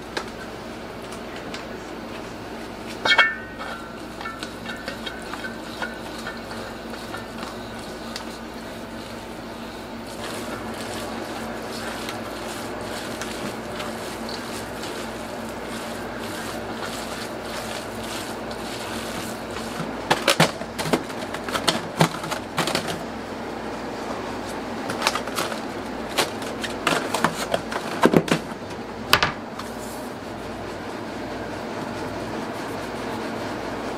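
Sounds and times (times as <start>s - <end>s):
steady hum: 0.0s - 33.9s
egg salad mixed by hand in bowl: 2.7s - 22.8s
metal tray and utensils clanking: 3.0s - 8.3s.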